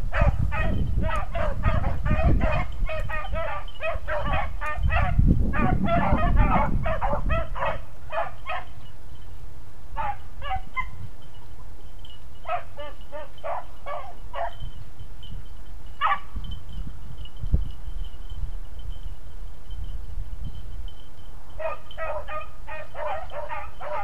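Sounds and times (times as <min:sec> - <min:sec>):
beagles barking: 0:00.1 - 0:08.8, 0:10.0 - 0:11.0, 0:12.4 - 0:14.7, 0:16.0 - 0:16.4, 0:21.6 - 0:24.0.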